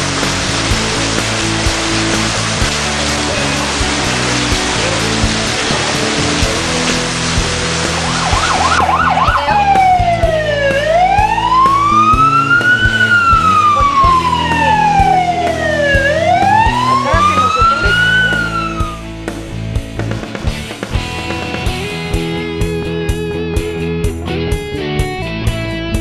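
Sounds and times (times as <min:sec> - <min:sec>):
rushing water hiss: 0:00.0 - 0:09.4
emergency vehicle siren: 0:07.6 - 0:19.1.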